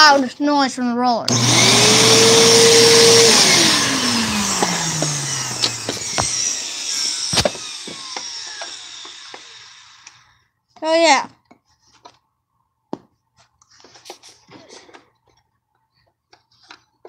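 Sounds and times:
vacuum motor whining down: 0:01.3 - 0:10.3.

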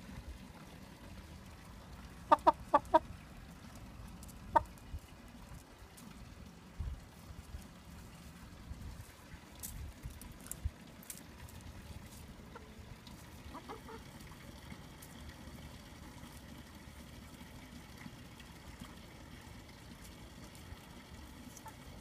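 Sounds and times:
low background noise: 0:00.0 - 0:22.0
chickens clucking: 0:02.1 - 0:03.2, 0:04.2 - 0:04.9, 0:12.1 - 0:14.9, 0:21.5 - 0:22.0.

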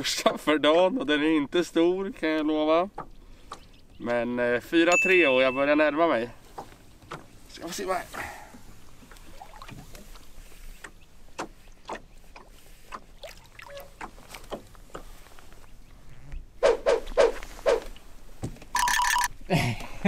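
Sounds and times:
light taps in a boat: 0:00.2 - 0:01.0, 0:02.2 - 0:04.3, 0:06.4 - 0:07.8, 0:08.4 - 0:15.7.

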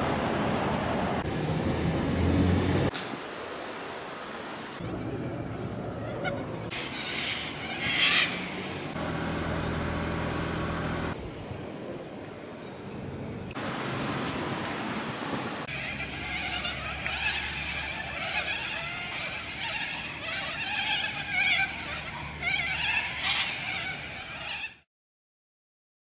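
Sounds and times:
street traffic rush: 0:00.0 - 0:03.5, 0:04.8 - 0:17.9
small birds chirping: 0:15.7 - 0:24.8.

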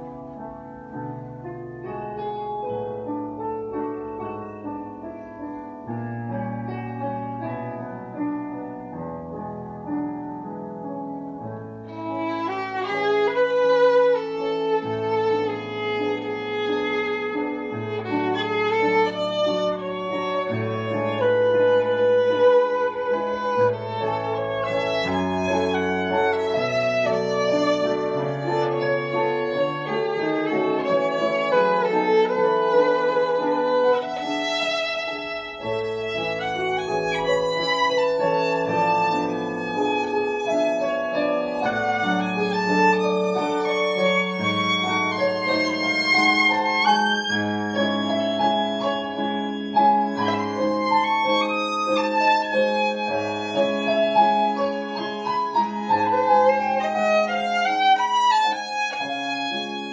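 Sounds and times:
violin melody: 0:00.0 - 0:59.9.

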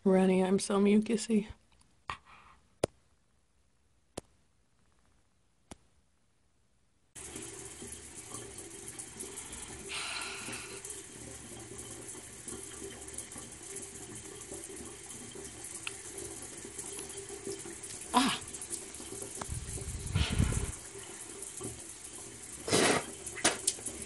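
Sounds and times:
water pick motor buzz: 0:07.2 - 0:21.0.

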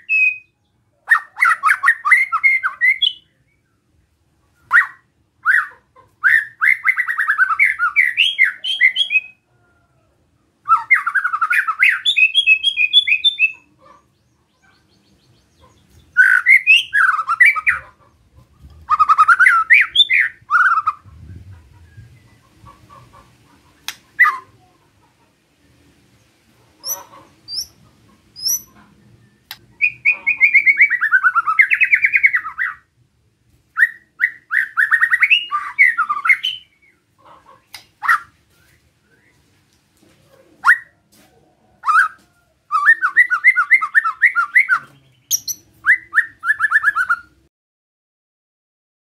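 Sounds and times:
bird sharp chips: 0:28.4 - 0:28.8.

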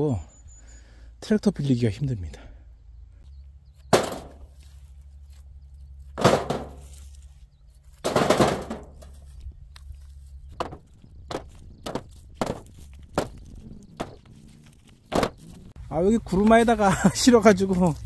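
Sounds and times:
heavy stones thudding: 0:03.9 - 0:04.5, 0:06.2 - 0:06.9, 0:10.6 - 0:14.3, 0:15.0 - 0:15.5.

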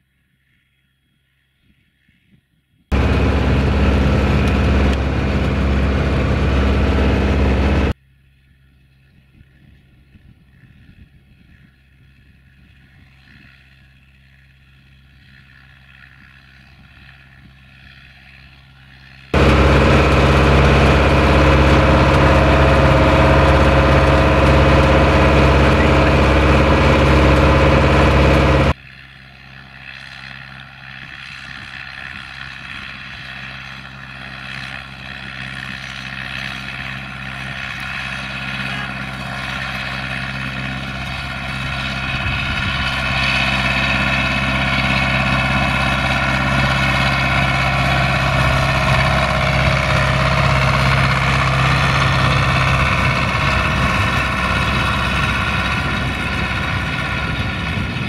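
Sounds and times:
tractor diesel engine under load: 0:02.9 - 0:08.0, 0:17.1 - 0:58.0.

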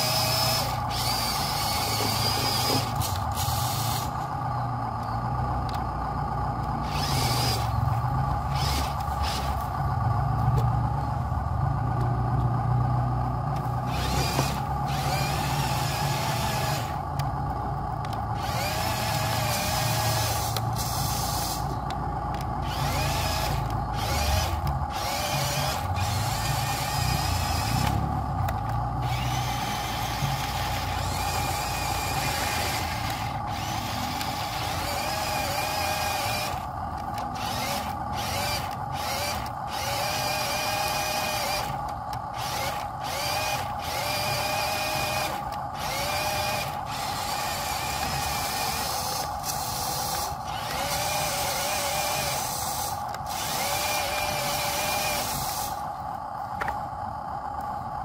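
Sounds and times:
model truck motors whining: 0:00.0 - 0:58.0.

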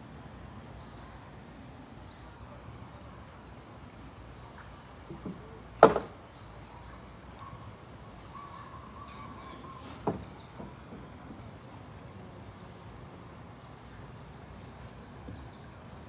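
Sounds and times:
sharp knocks: 0:05.1 - 0:06.2
faint bird chirps: 0:06.3 - 0:10.6.

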